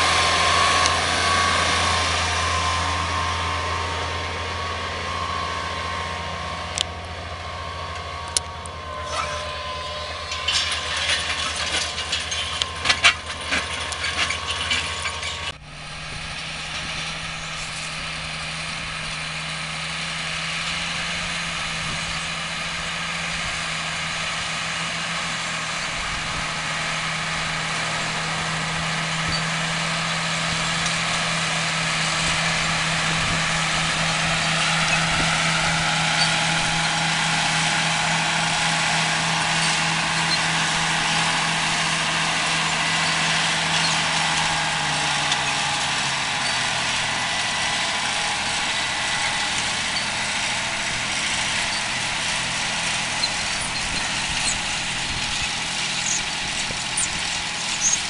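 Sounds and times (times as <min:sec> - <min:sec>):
high whine: 0:00.0 - 0:13.2
tractor diesel engine under load: 0:00.0 - 0:58.0.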